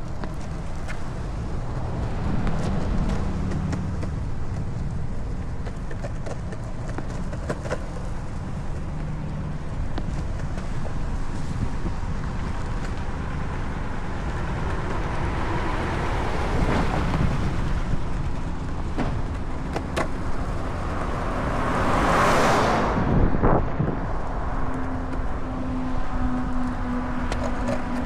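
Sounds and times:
car passing: 0.0s - 5.9s, 6.6s - 28.0s
longboard wheels rolling on asphalt: 0.0s - 28.0s
wind on microphone: 10.9s - 13.2s, 14.4s - 18.8s, 20.3s - 27.2s.

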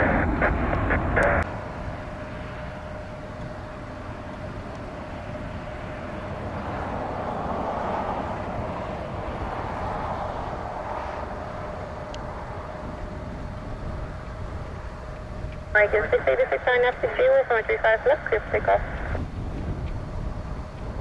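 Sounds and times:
jet engines rumbling: 0.0s - 21.0s
thin steady hum: 8.2s - 21.0s.

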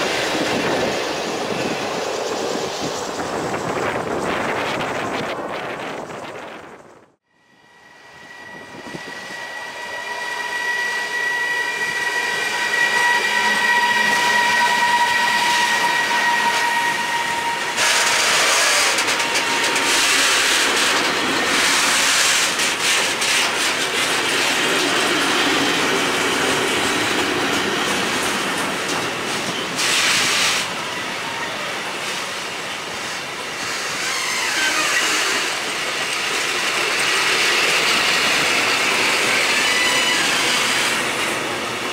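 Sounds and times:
locomotive high whine: 0.0s - 41.9s
train wheels clickety-clack: 12.4s - 30.8s, 33.0s - 41.9s.

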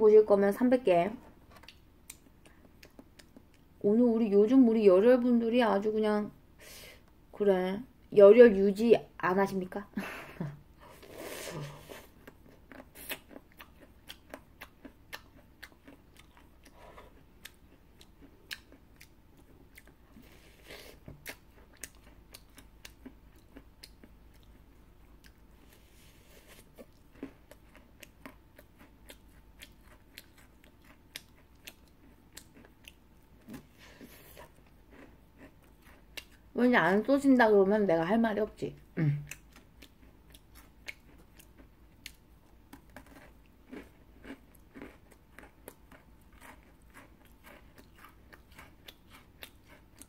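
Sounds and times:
cookie crunching: 39.4s - 50.0s.

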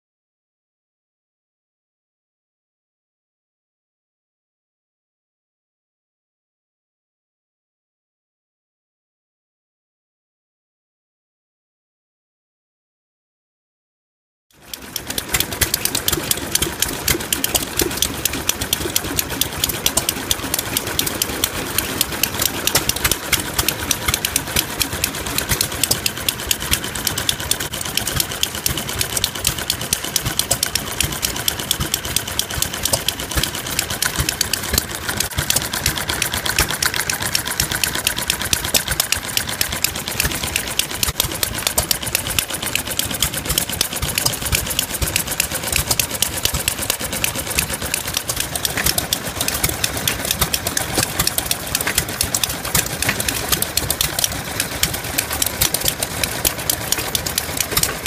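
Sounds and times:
small gasoline engine running: 14.5s - 58.0s.

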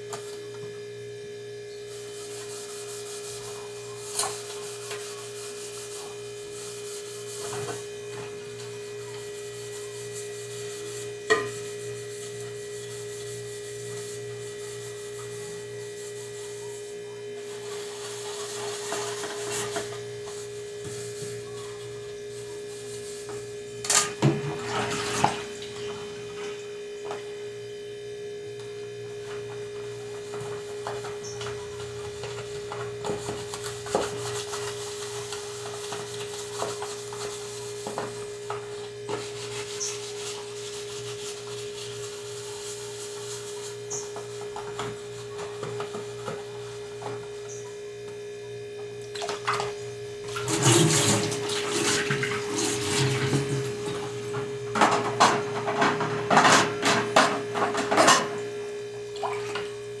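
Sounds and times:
electrical hum: 0.0s - 60.0s
plastic containers being scrubbed: 50.3s - 56.0s.

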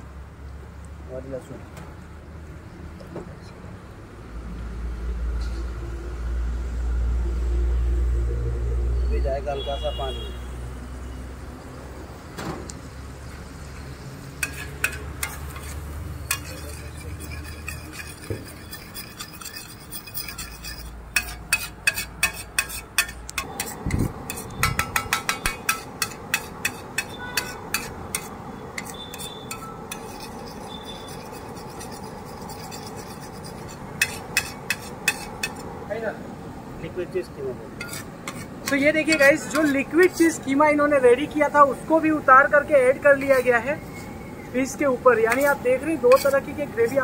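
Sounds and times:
metal spatula scraping steel pan: 14.4s - 35.7s, 37.8s - 40.3s, 43.1s - 47.0s.

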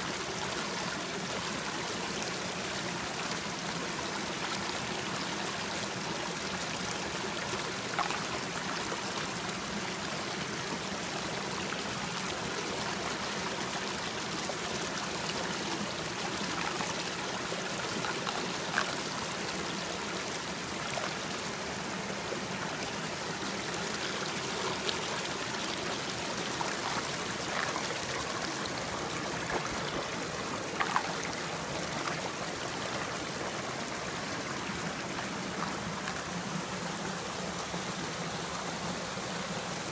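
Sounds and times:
water flowing over rocks: 0.0s - 39.9s
water plinks: 16.1s - 19.4s, 23.8s - 34.2s.

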